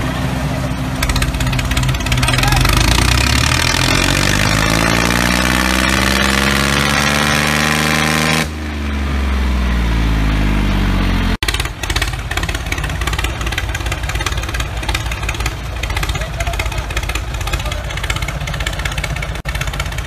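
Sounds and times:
engine rumbling: 0.0 - 20.0
rough pulsing engine: 0.0 - 20.0.

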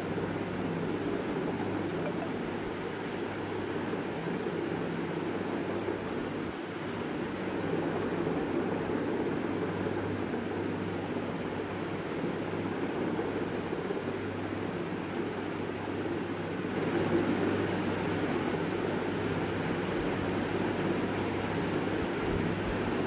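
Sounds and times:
steady low hum: 0.0 - 23.0
short high-pitched chirps: 1.3 - 2.4.

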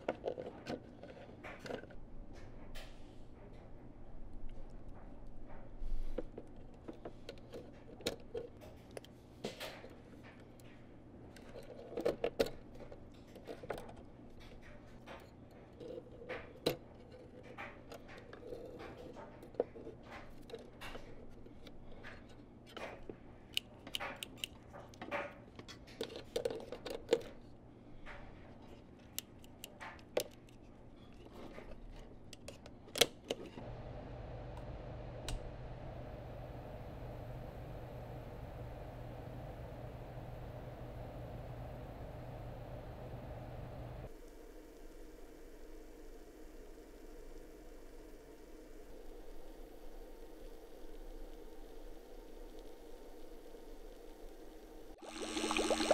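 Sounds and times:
steady low hum: 33.6 - 55.9.

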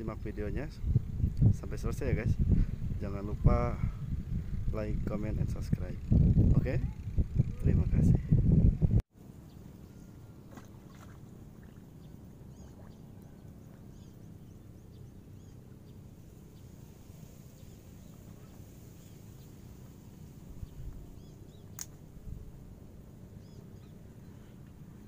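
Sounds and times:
small birds chirping: 9.4 - 22.5, 23.2 - 25.0
sharp click: 21.7 - 22.0.

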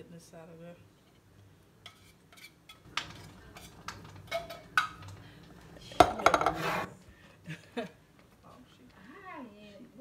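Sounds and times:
can and utensil scraping metal pot: 1.8 - 5.2, 6.0 - 6.9.

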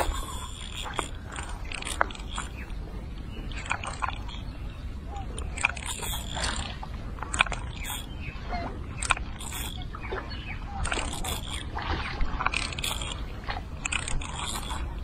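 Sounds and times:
fishing reel clicks and scrapes: 0.0 - 2.6, 5.4 - 8.1, 9.0 - 9.8, 10.8 - 11.8, 12.4 - 13.2, 13.8 - 15.0
steady low rumble: 0.0 - 15.0.

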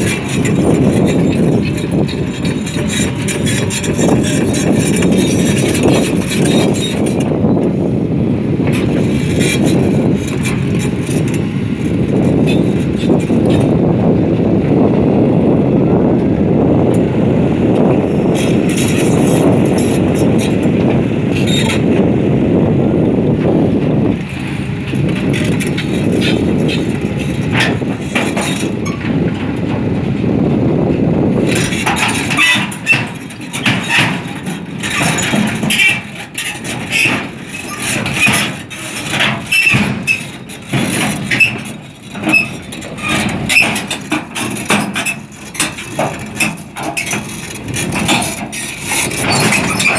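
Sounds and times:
steel tracks clanking: 0.0 - 7.9, 8.6 - 14.4, 16.2 - 49.9
excavator engine rumbling: 0.0 - 49.9.

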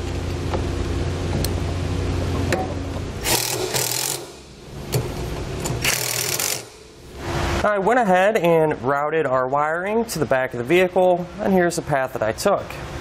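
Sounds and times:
impact driver motor whir: 3.2 - 4.5, 5.8 - 6.9
impact driver rapid hammering: 3.2 - 4.5, 5.8 - 6.9.

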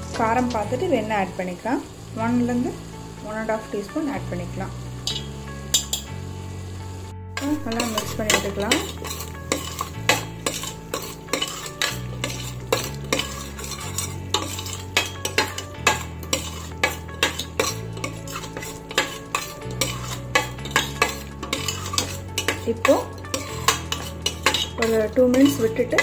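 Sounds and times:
metal ladle scraping a pot: 5.0 - 6.1, 7.4 - 26.0
ladle clinking against pot: 5.1 - 6.1, 7.4 - 26.0.

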